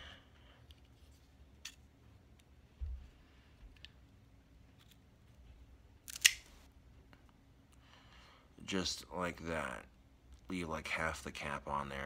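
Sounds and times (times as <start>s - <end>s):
cigar cutter clicks: 6.1s - 6.5s.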